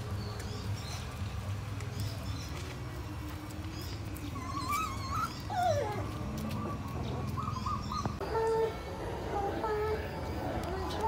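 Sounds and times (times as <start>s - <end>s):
puppy whining: 4.1s - 11.0s.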